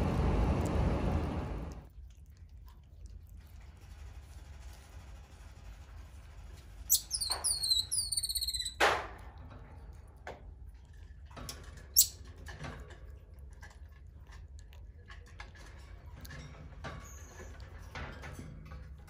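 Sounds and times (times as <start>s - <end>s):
marmoset chewing: 1.8s - 19.0s
marmoset chirping: 6.9s - 8.8s.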